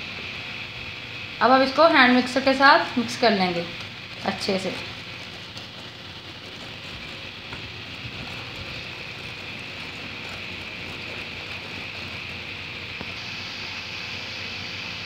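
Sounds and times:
steady background hiss: 0.0 - 15.0
whisk swishing in bowl: 2.0 - 13.2.

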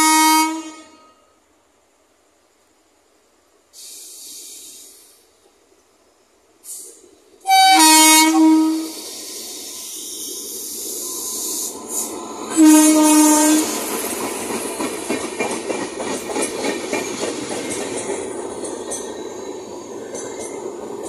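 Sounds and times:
locomotive horn blasts: 0.0 - 1.3, 7.4 - 9.0, 12.5 - 13.7
train coaches rumbling and clattering: 3.4 - 21.0.

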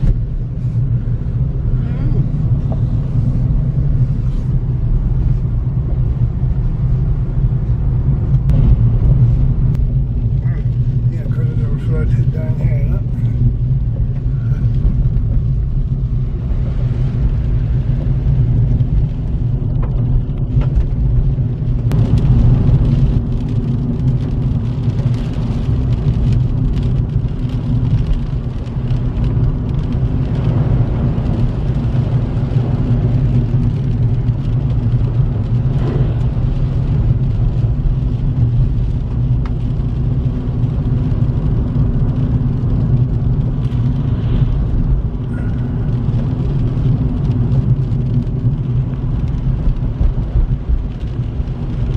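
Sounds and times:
car engine and tyres rumbling: 0.0 - 51.9.

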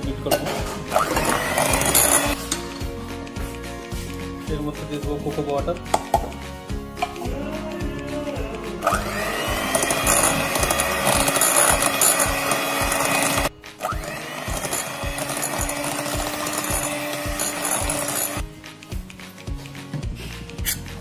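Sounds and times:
background music with steady beat: 0.0 - 21.0
electric hand mixer whining: 0.9 - 2.4, 8.8 - 18.4.

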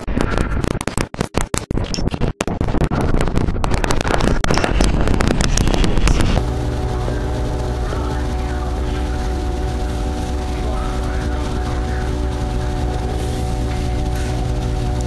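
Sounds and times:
rapid stuttering clicks: 0.0 - 15.0
steady drone with held tones: 4.5 - 15.0.

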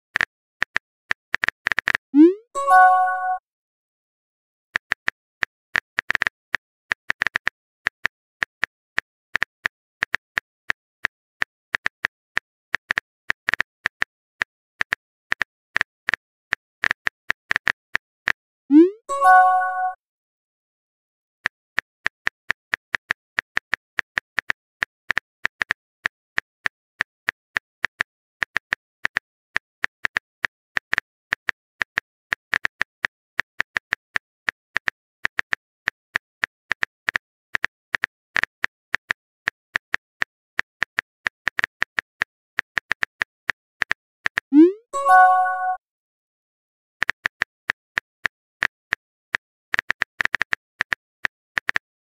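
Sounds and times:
keyboard typing clicks: 1.4 - 3.4, 18.7 - 20.0, 42.7 - 45.8
pop and chime sound effect: 2.2 - 3.4, 18.7 - 20.0, 44.6 - 45.8.

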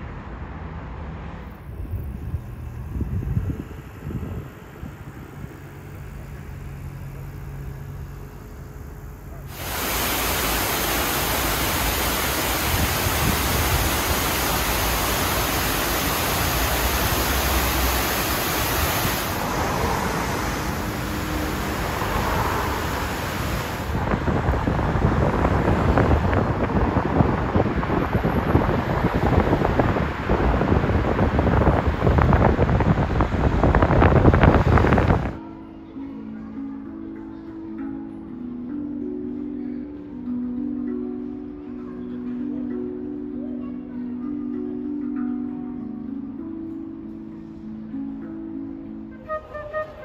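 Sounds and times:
wind rumble on microphone: 1.4 - 6.1, 9.5 - 35.4
water streaming down stone wall: 9.5 - 24.1.

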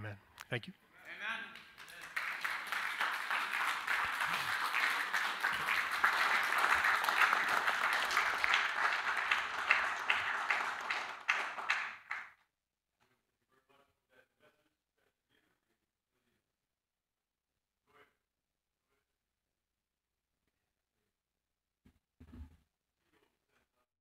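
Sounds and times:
congregation applauding: 1.1 - 12.4.

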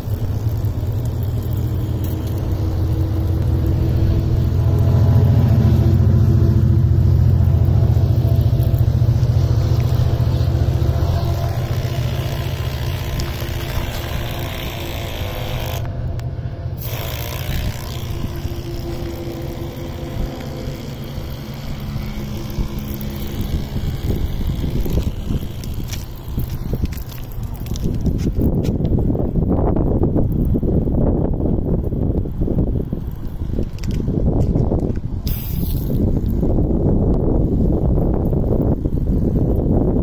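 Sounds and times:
water spraying: 0.0 - 16.1, 16.7 - 39.8
water pump running: 0.0 - 29.6.

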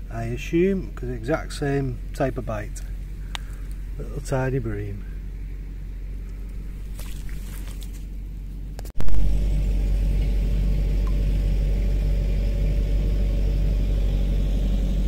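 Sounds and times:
steady low rumble: 0.0 - 15.0
faint clicks: 3.3 - 3.8.

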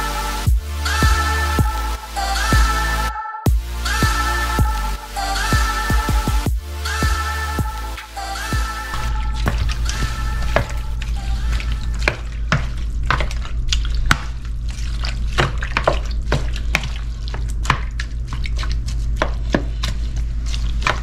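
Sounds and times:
wooden spoon stirring in bowl: 9.0 - 21.0.

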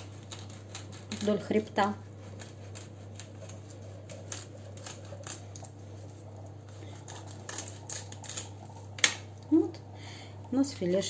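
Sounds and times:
knife scraping over fish bones: 0.0 - 5.8, 6.8 - 8.7.

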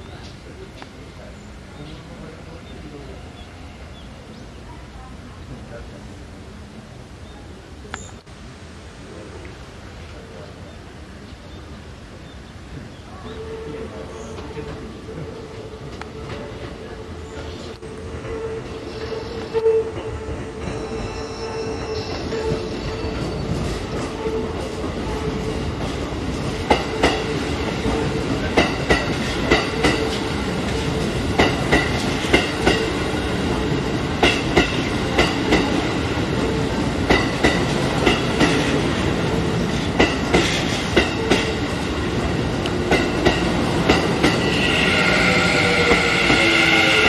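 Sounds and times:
train running rumble: 11.7 - 47.0
train wheels clacking over rail joints: 22.4 - 39.0, 39.6 - 41.6, 42.6 - 44.8.

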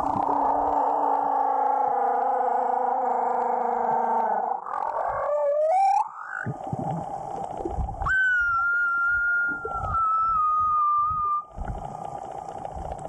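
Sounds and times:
low underwater rumbles: 0.0 - 1.4, 6.4 - 13.0
whale song underwater: 0.0 - 13.0.

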